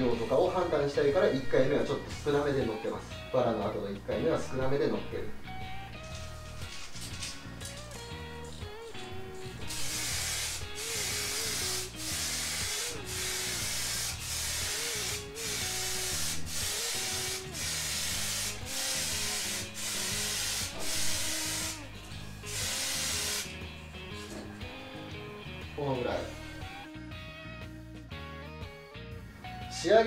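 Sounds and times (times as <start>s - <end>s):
background music: 0.0s - 30.0s
aerosol spray can hissing: 9.5s - 24.5s.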